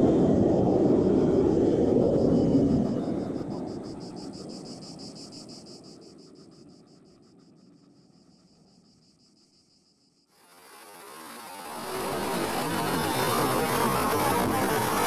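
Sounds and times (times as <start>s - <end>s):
insects chirping: 0.1s - 15.0s
jet blast roar: 10.4s - 15.0s.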